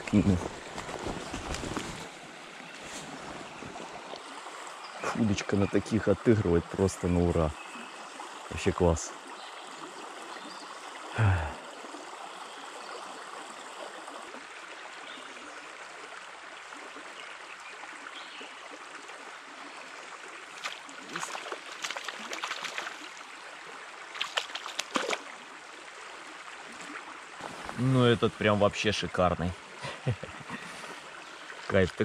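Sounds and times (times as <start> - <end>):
forest stream running: 0.0 - 32.0.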